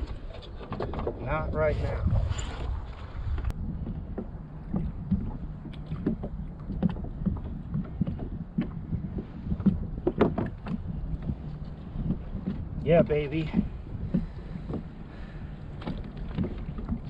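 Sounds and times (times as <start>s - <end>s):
low wind rumble: 0.0s - 17.0s
water lapping against hull: 0.0s - 17.0s
knocks and taps on kayak: 3.8s - 14.9s, 15.8s - 17.0s.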